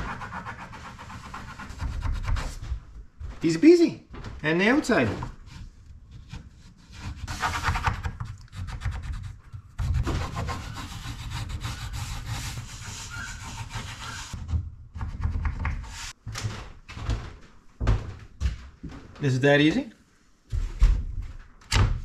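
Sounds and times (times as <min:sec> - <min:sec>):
pencil scratching along template: 0:06.4 - 0:14.4.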